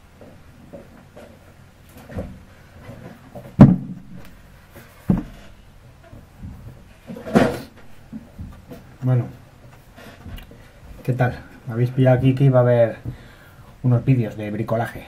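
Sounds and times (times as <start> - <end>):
rustling thump: 0.7 - 9.0.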